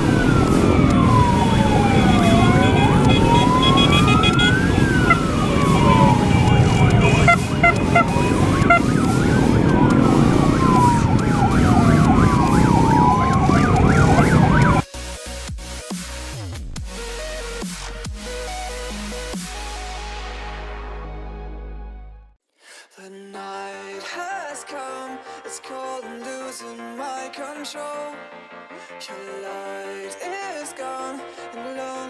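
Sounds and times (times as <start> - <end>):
sirens wailing: 0.0 - 14.8
electronic music: 0.0 - 22.3.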